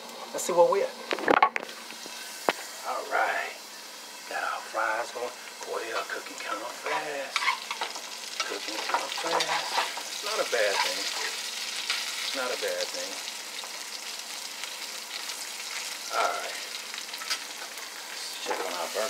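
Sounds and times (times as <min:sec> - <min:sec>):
fries sizzling in hot oil: 0:00.0 - 0:19.0
spatula scraping pan: 0:06.4 - 0:12.2.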